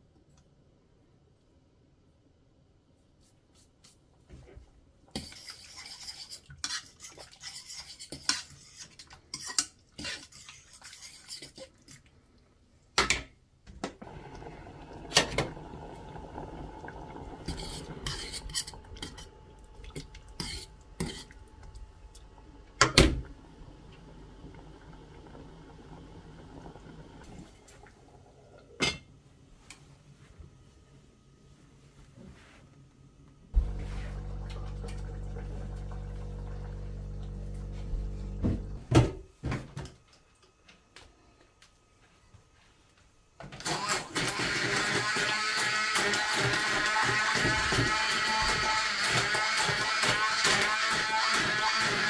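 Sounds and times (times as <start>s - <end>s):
steady low hum: 33.6s - 38.9s.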